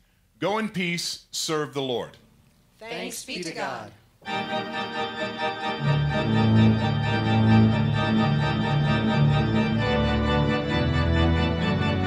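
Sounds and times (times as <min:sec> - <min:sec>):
church organ playing chords: 0:04.2 - 0:12.0.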